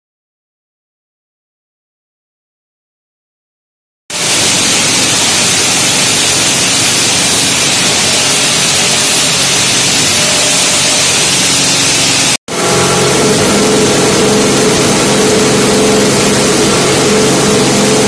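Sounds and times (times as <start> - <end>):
steam turbine hissing: 4.1 - 18.0.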